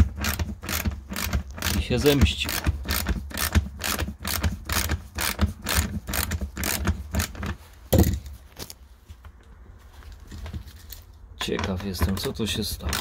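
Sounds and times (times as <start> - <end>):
ratchet wrench clicking: 0.0 - 7.6
thump: 7.9 - 8.3.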